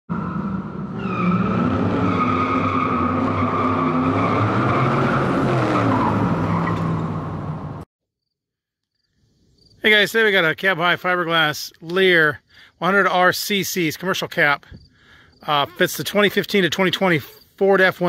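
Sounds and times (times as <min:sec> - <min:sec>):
car tyres squealing: 0:00.1 - 0:07.7
car engine revving: 0:00.1 - 0:07.8.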